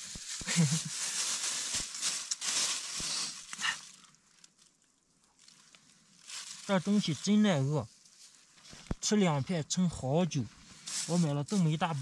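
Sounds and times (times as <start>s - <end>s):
plastic bag rustling and crinkling: 0.0s - 7.4s, 10.6s - 12.0s.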